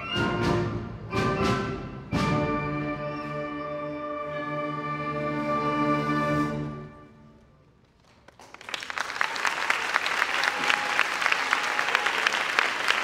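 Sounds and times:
audience applause: 0:08.0 - 0:13.0.

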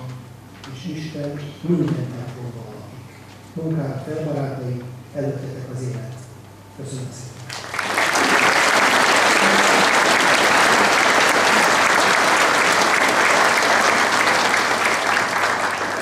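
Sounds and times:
audience applauding: 0:07.5 - 0:16.0.

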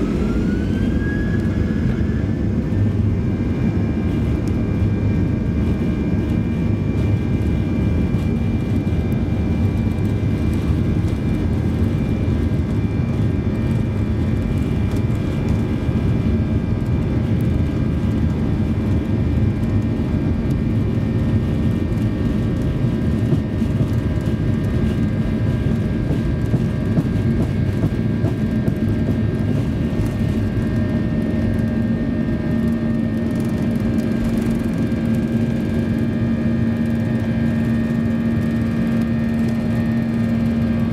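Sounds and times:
jet engines at takeoff power: 0:00.0 - 0:40.9.

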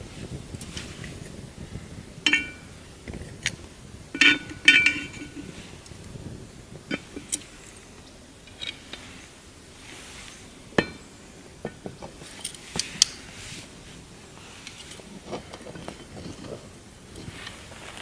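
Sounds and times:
tongs and coals clinking on iron: 0:02.2 - 0:06.2, 0:06.8 - 0:09.4, 0:10.2 - 0:13.3, 0:14.4 - 0:17.8.

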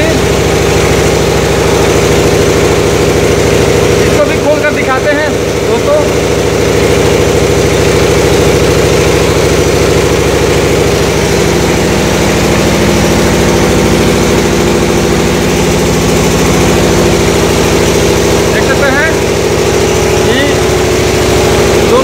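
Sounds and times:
machinery humming: 0:00.0 - 0:22.0
water gushing onto floor: 0:00.0 - 0:22.0.

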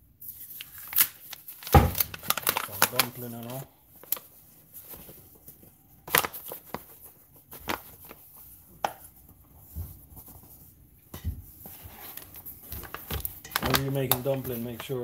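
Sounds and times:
paper bag crinkling: 0:00.3 - 0:08.4, 0:11.6 - 0:15.0.

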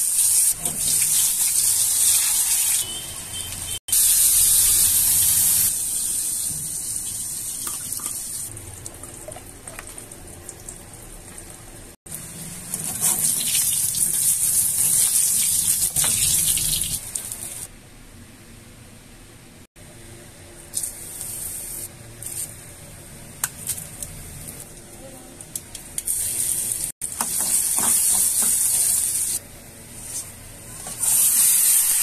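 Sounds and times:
vegetables sizzling in hot oil: 0:03.6 - 0:07.3, 0:26.0 - 0:29.4, 0:30.0 - 0:32.0.

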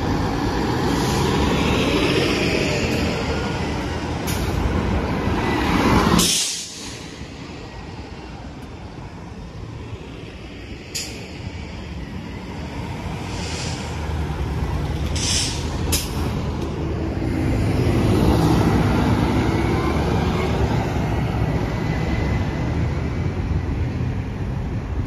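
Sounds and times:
bus engine drone: 0:00.0 - 0:25.0
air brake hisses: 0:06.2 - 0:07.2, 0:13.2 - 0:14.2, 0:15.0 - 0:16.2.

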